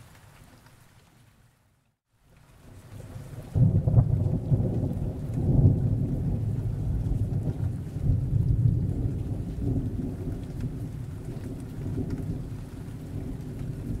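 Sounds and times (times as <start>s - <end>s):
steady rain hiss: 0.0s - 14.0s
low rolling thunder: 3.0s - 14.0s.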